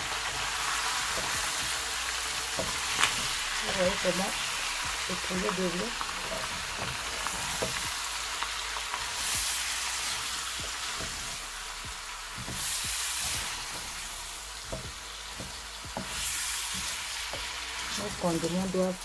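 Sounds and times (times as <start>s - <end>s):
food sizzling in a pan: 0.0s - 19.0s
spatula knocking and scraping pan: 1.0s - 4.3s, 6.2s - 8.0s, 9.2s - 11.5s, 12.3s - 18.6s.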